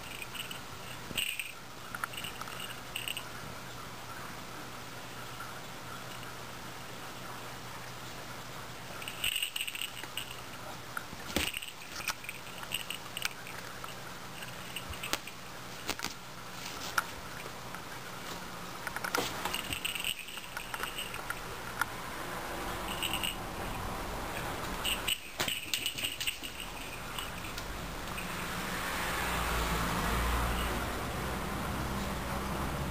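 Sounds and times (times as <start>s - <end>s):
toy ball clicking and rattling: 0.0s - 3.3s, 9.0s - 16.1s, 18.8s - 21.9s, 22.8s - 23.5s, 24.8s - 28.3s.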